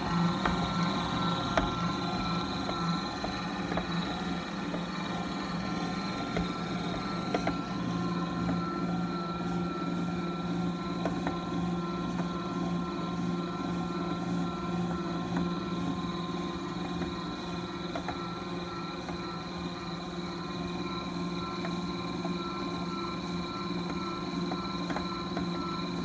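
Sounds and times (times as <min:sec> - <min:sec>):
stand mixer motor hum: 0:00.0 - 0:26.0.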